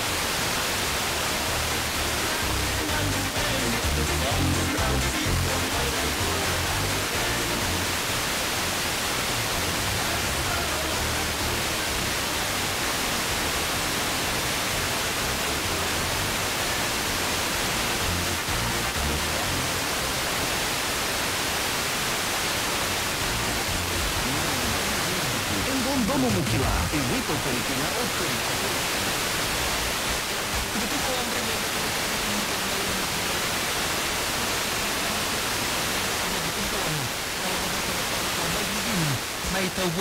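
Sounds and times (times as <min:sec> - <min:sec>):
faint radio music: 0:00.0 - 0:40.0
radio static hiss: 0:00.0 - 0:40.0.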